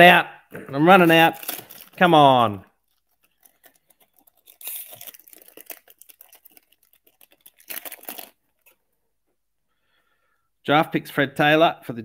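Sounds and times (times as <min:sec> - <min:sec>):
foil wrapper crinkling and tearing: 0:00.9 - 0:08.8.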